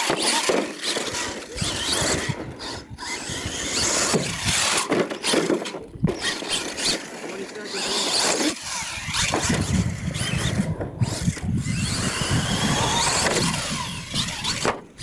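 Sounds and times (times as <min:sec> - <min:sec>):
tires churning over dirt: 0:00.0 - 0:15.0
toy truck motor whining: 0:00.0 - 0:15.0
truck landing thump: 0:14.6 - 0:15.0.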